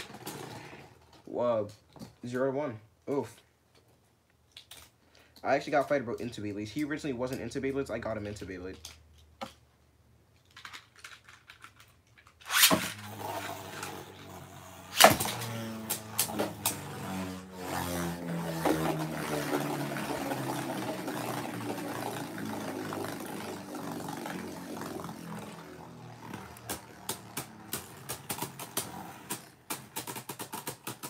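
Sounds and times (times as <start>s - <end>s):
spinning tops whirring: 12.3s - 31.0s
spinning top ripping launch: 12.4s - 31.0s.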